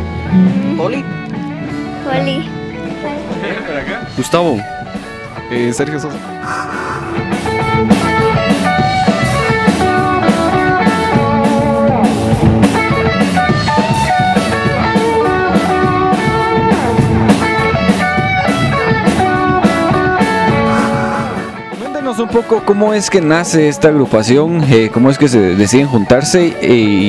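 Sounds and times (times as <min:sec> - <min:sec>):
electric guitars: 0:00.0 - 0:22.4
electric bass: 0:06.3 - 0:21.6.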